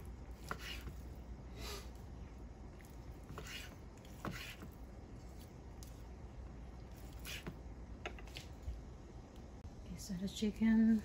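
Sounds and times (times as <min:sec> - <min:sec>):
knife cutting strokes: 0:00.3 - 0:01.2, 0:02.8 - 0:06.0, 0:06.9 - 0:07.6.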